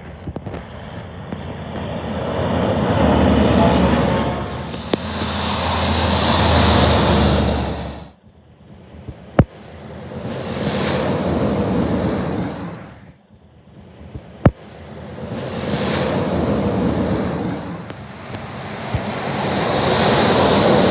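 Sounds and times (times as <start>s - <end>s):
trucks passing on a highway: 0.0s - 8.2s, 14.7s - 20.9s.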